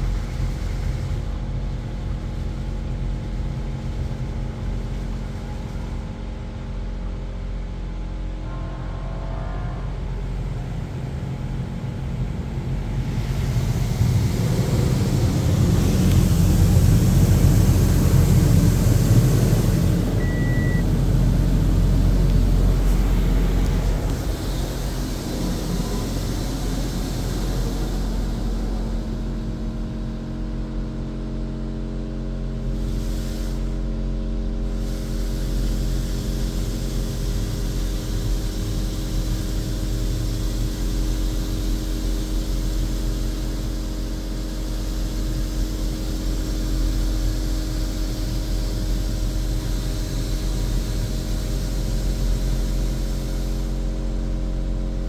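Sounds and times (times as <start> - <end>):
low hum: 8.2 - 31.0
water spraying over car: 13.0 - 28.6.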